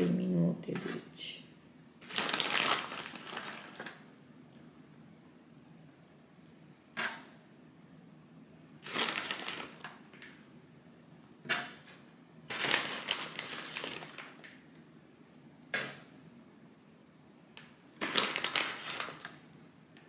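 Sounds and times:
crunching and crinkling: 2.0 - 4.0, 8.8 - 10.0, 12.5 - 14.5, 18.0 - 19.4.

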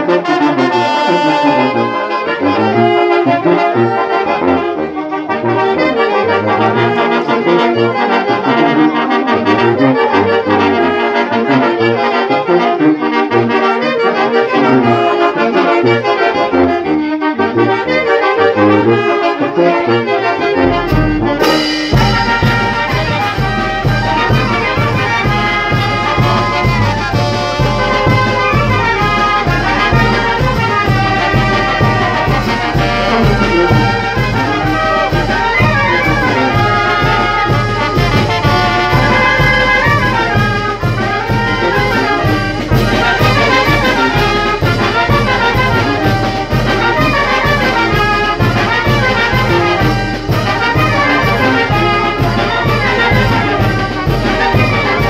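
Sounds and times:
brass band playing dance music: 0.0 - 55.0
sharp percussion strokes: 20.8 - 46.9.

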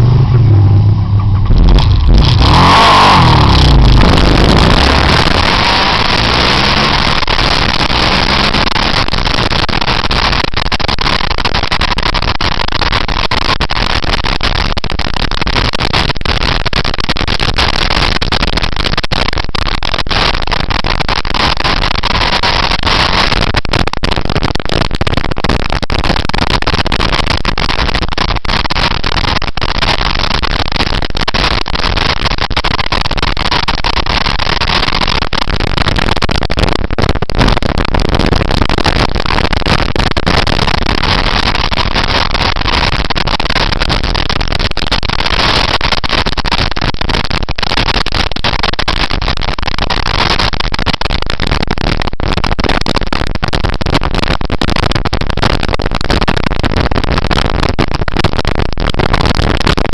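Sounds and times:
motorcycle engine and road noise: 0.0 - 44.6
wind rushing over microphone: 0.0 - 45.7.

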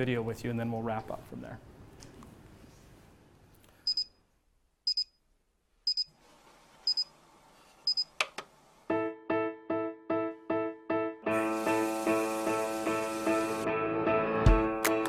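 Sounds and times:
alarm clock double beeps: 3.9 - 4.1, 4.9 - 5.2, 5.9 - 6.1, 6.9 - 7.1, 7.9 - 8.1.

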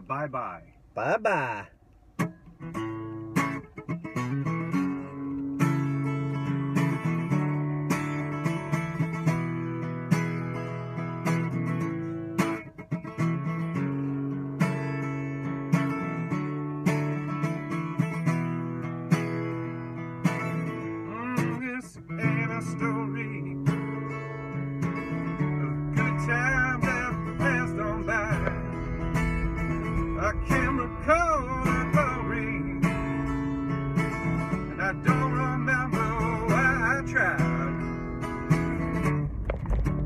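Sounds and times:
acoustic guitar strumming: 0.0 - 40.0
man singing: 21.0 - 24.2, 25.2 - 29.1, 29.9 - 33.3, 34.4 - 38.2.

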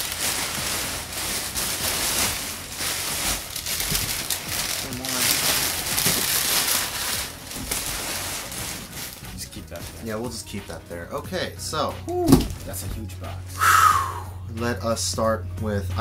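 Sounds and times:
packing paper rustling: 0.0 - 10.4.

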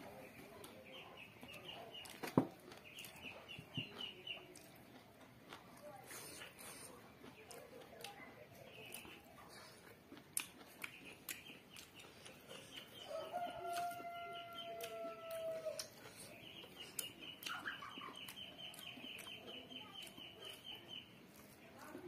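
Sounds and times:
person eating with fingers: 0.1 - 22.0
rooster crowing: 13.0 - 15.9.

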